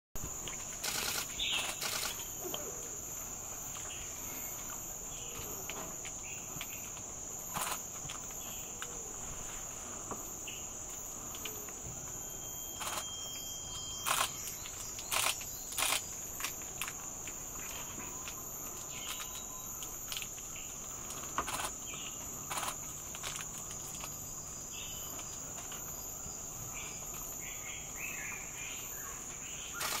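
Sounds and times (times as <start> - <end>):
insect chorus drone: 0.2 - 30.0
thin whistle: 12.2 - 15.7.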